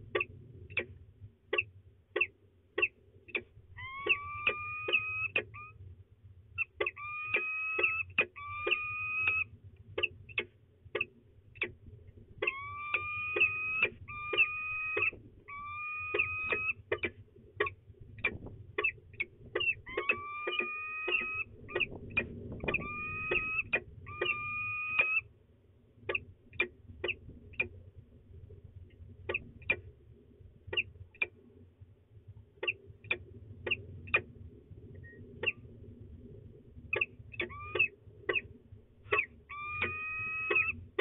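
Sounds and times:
falcons chipping calls: 0:02.8 - 0:05.8, 0:06.6 - 0:10.5, 0:12.4 - 0:17.1, 0:18.2 - 0:25.2, 0:37.0 - 0:38.4, 0:39.1 - 0:40.8
falcon whining calls: 0:03.8 - 0:05.8, 0:06.6 - 0:10.4, 0:12.4 - 0:17.1, 0:18.2 - 0:25.2, 0:37.0 - 0:38.4, 0:39.1 - 0:40.8
low rumble: 0:10.6 - 0:41.0.

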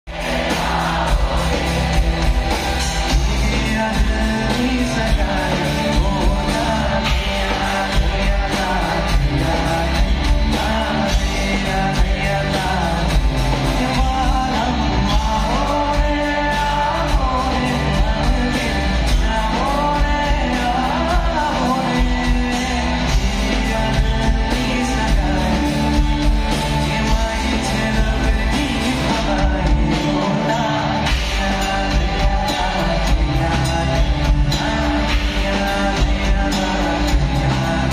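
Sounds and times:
live band playing: 0:00.1 - 0:37.9
man singing: 0:00.1 - 0:37.9.

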